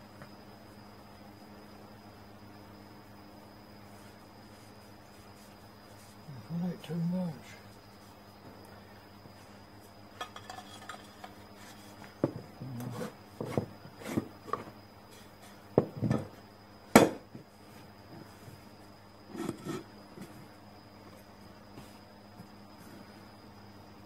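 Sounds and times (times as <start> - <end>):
metal pipe knocks and scrapes: 10.2 - 12.4.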